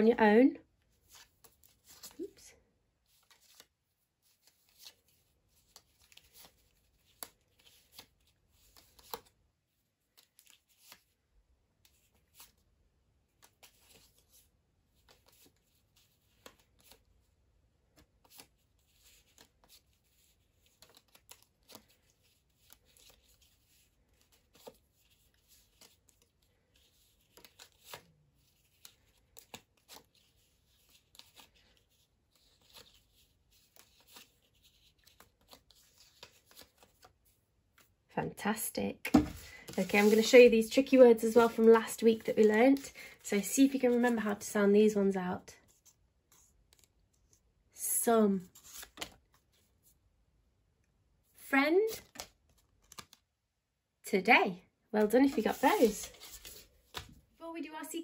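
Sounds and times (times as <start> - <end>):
paper flashcards rustling: 0.9 - 2.4, 3.0 - 9.4, 10.0 - 11.2, 13.3 - 38.0, 39.1 - 44.5, 45.6 - 47.5, 48.4 - 49.9, 51.9 - 53.2, 55.0 - 57.9
cards laid on wooden table: 39.0 - 40.3.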